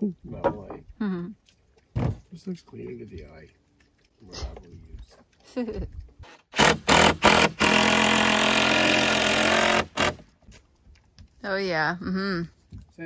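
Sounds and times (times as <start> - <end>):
cordless drill driving screw: 6.3 - 10.2.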